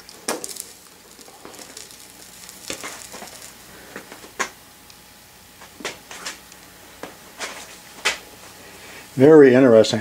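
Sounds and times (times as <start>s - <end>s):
hot metal sizzling and crackling: 0.0s - 9.9s.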